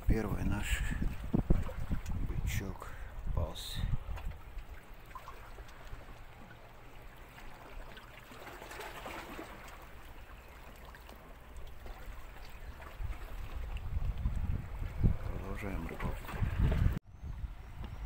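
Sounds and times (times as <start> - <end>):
waves lapping on rocky shore: 4.7 - 13.9.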